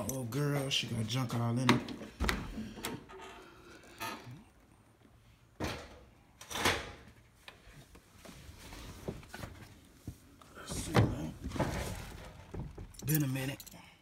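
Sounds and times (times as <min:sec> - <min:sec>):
rustling and handling noises: 0:07.2 - 0:13.8.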